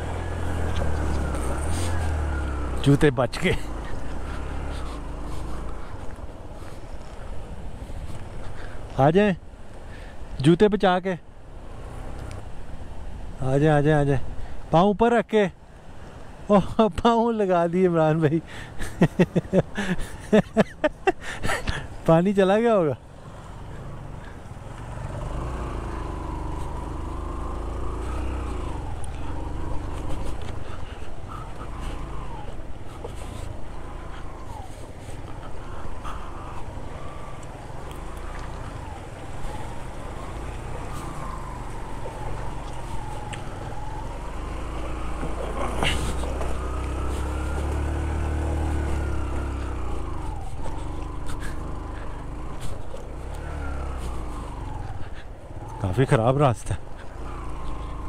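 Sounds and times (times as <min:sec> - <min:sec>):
motorcycle engine revving: 0:00.0 - 0:05.9, 0:23.3 - 0:55.8, 0:57.0 - 0:58.0.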